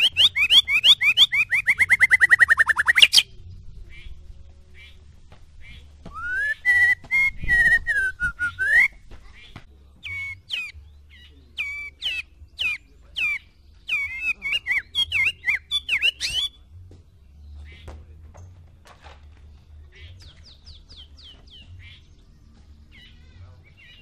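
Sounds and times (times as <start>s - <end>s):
bird singing whistled phrases: 0.0s - 4.1s, 5.7s - 9.0s, 10.0s - 16.6s.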